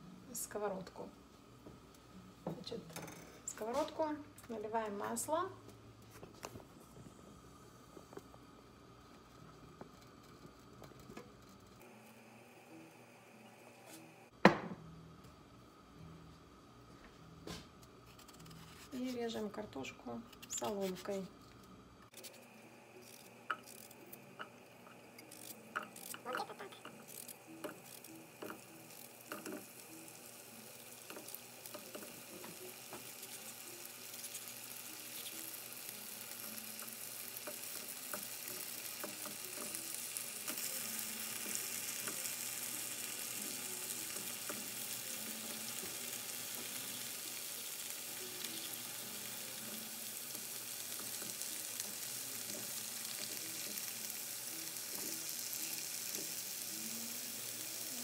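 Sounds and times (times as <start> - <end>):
potato sticks sizzling in oil: 22.1 - 58.0.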